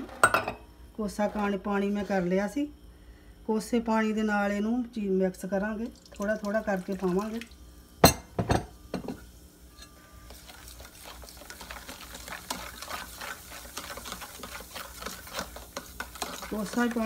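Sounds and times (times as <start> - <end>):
metal spoon scraping steel bowl: 9.7 - 17.0.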